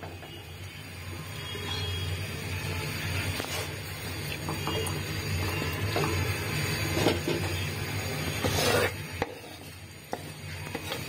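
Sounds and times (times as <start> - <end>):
spoon scraping and clicking on pan: 8.4 - 11.0.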